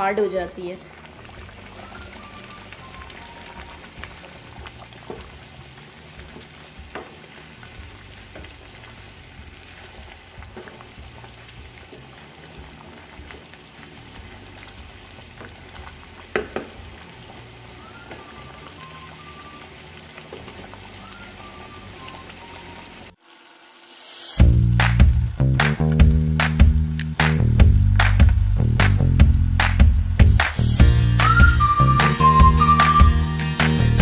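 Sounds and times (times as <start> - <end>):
curry bubbling and sizzling in pan: 0.0 - 31.8
wooden spatula knocking against pan: 16.3 - 16.8.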